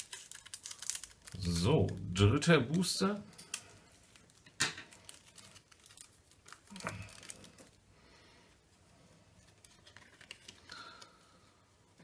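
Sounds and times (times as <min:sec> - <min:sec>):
foil pack crinkling and tearing: 0:00.0 - 0:02.2, 0:03.3 - 0:07.9.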